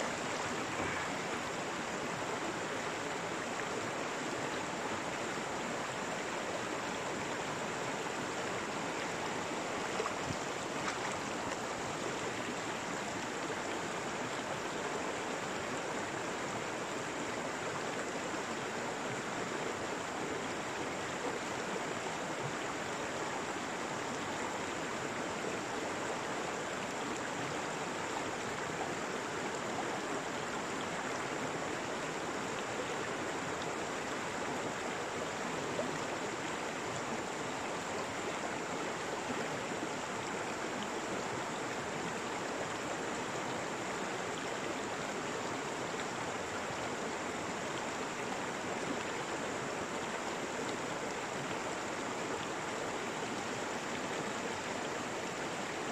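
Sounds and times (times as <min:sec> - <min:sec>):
stream water rushing: 0:00.0 - 0:55.9.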